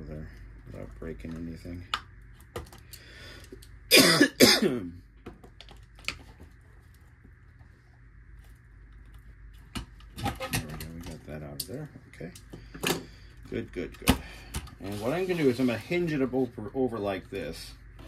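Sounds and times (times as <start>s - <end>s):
man coughing: 3.9s - 5.0s.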